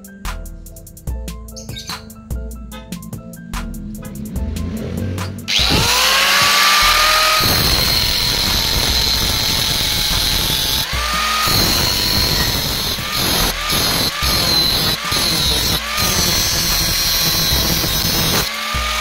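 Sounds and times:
background music: 0.0 - 19.0
angle grinder cutting steel: 5.5 - 19.0.

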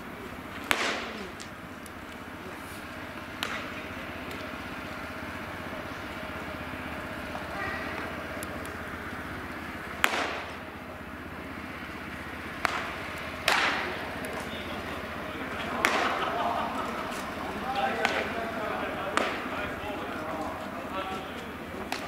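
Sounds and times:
background murmur: 0.0 - 22.0
baseball smacking into glove: 0.6 - 1.6, 3.3 - 3.8, 10.0 - 10.6, 12.6 - 14.4, 15.8 - 16.2, 19.1 - 19.5.

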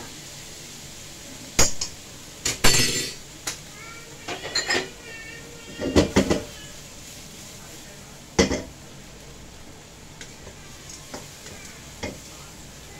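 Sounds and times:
clinks and knocks of cookware: 1.6 - 3.2, 4.3 - 4.9.

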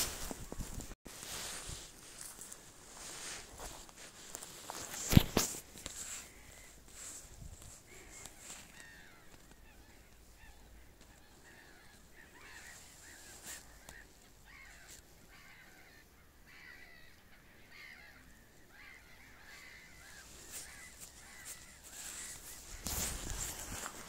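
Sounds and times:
faint waterfowl calling: 5.9 - 24.0.

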